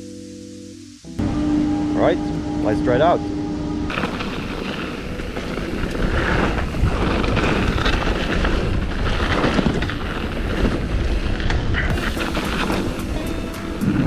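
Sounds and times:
wind buffeting microphone: 0:03.8 - 0:14.0
bike rolling on gravel: 0:03.9 - 0:14.0.

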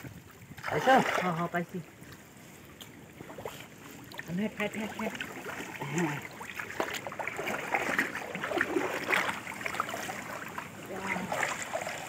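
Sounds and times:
muddy water splashing and sloshing: 0:00.0 - 0:12.0.

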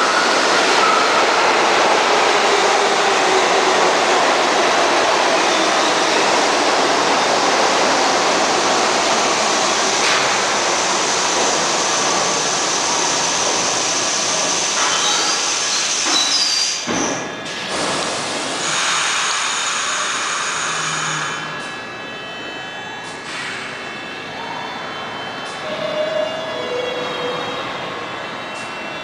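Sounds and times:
subway train rumbling past: 0:00.0 - 0:29.0
high wheel squeal: 0:13.9 - 0:17.6, 0:25.5 - 0:28.7.

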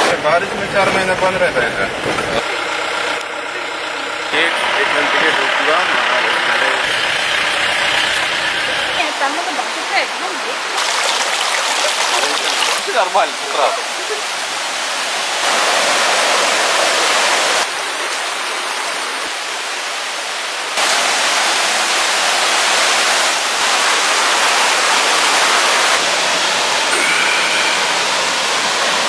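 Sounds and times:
river rushing over boulders: 0:08.9 - 0:29.0.

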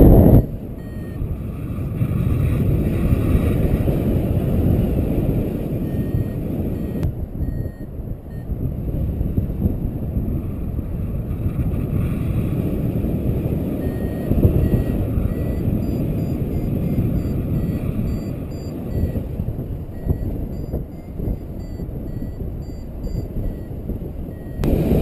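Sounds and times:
variometer high beeps: 0:00.0 - 0:01.5, 0:05.7 - 0:08.6, 0:13.7 - 0:25.0
wind over microphone: 0:00.0 - 0:25.0.

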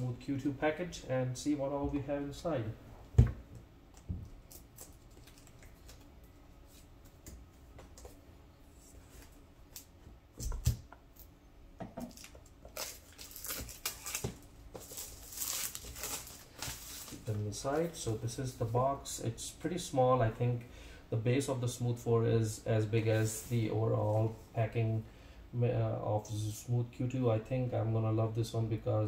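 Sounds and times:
packaging rustling and crackling: 0:04.4 - 0:06.1, 0:12.0 - 0:18.0.

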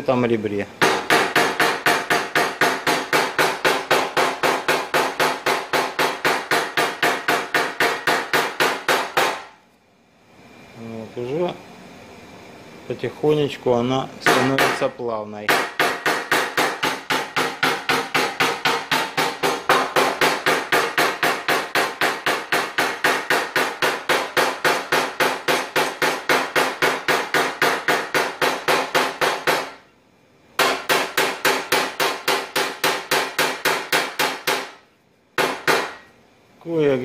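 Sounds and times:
hammer tapping sheet metal: 0:00.8 - 0:09.5, 0:14.2 - 0:14.9, 0:15.5 - 0:29.8, 0:30.6 - 0:34.8, 0:35.4 - 0:36.1.

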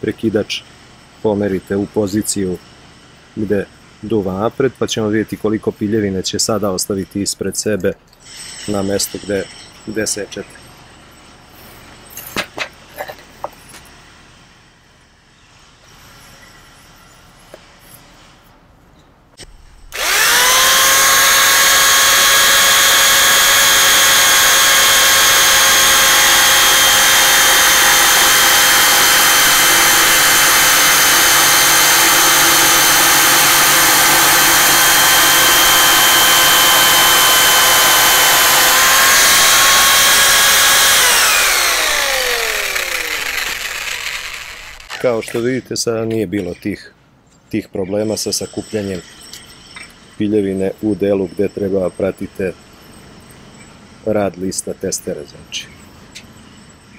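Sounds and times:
jigsaw cutting wood: 0:19.9 - 0:45.2.

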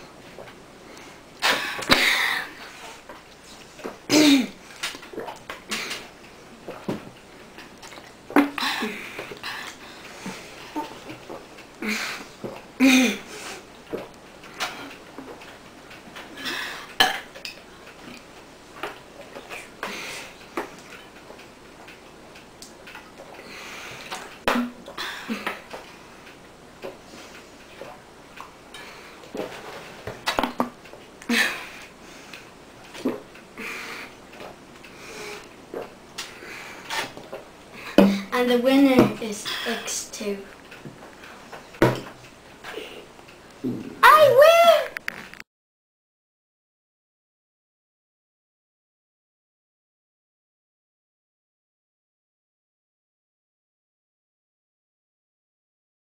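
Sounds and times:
boys gulping water: 0:03.8 - 0:07.0, 0:07.7 - 0:11.5, 0:32.9 - 0:33.3, 0:35.4 - 0:38.3
people gulping water: 0:04.8 - 0:06.9.

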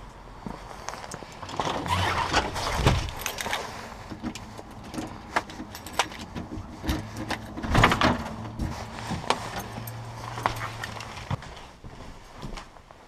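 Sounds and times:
keys jangling: 0:03.0 - 0:03.7, 0:04.8 - 0:06.4, 0:09.5 - 0:11.2.

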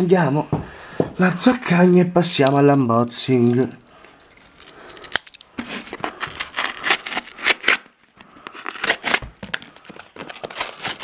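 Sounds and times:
paper rustling: 0:05.2 - 0:11.0
cardboard being cut and torn: 0:05.6 - 0:11.0.

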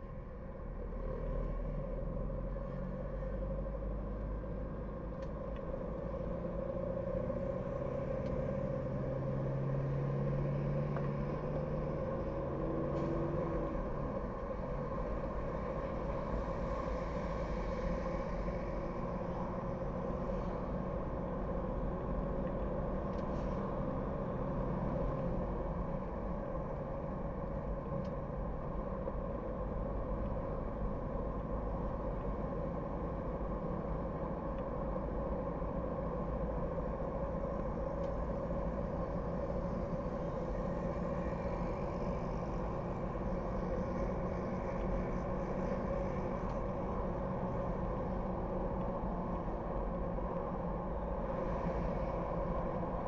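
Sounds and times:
car road noise: 0:00.0 - 0:53.0.

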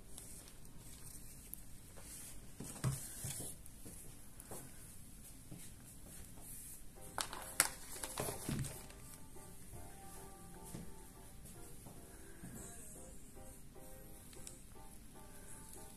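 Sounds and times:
quiet music: 0:04.7 - 0:15.9.

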